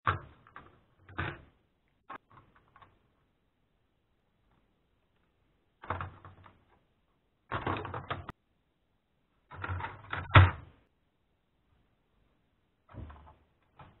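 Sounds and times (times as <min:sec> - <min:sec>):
plastic parts clattering: 0:09.4 - 0:10.6.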